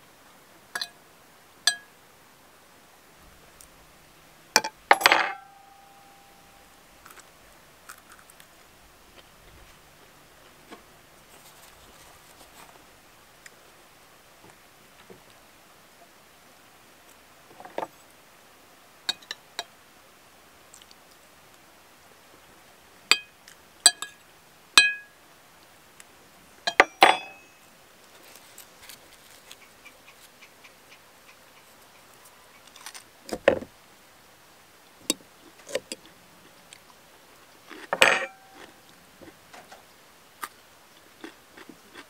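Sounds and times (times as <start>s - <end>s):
fork clinking on glass plate: 1.7s - 1.9s, 4.6s - 6.1s, 23.9s - 24.2s, 24.8s - 25.1s, 26.7s - 27.6s, 38.0s - 38.6s
onion crunching: 7.0s - 8.5s, 28.1s - 30.2s, 32.6s - 33.1s.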